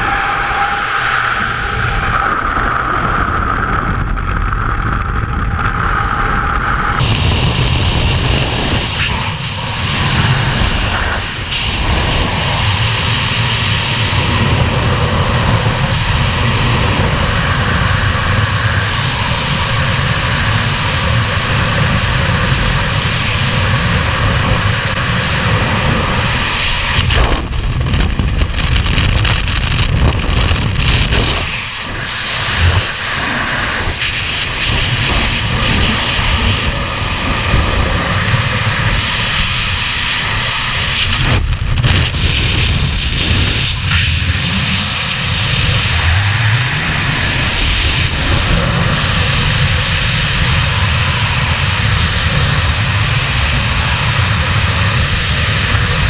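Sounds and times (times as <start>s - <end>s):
freefall wind rushing: 0.0s - 56.0s
high whistle: 10.2s - 11.2s.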